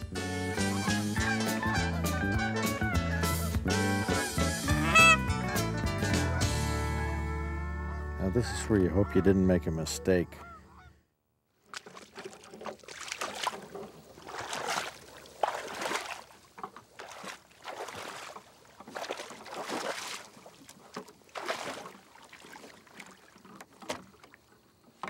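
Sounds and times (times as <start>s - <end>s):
water sloshing and splashing: 11.6s - 25.0s.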